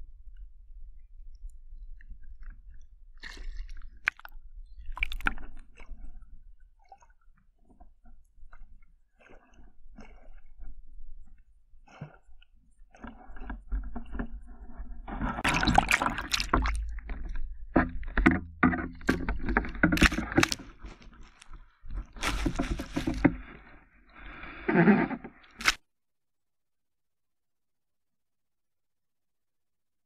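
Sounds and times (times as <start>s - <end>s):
water splashing and sloshing: 0.2s - 25.8s
knocks and scrapes on camera housing: 17.1s - 23.8s.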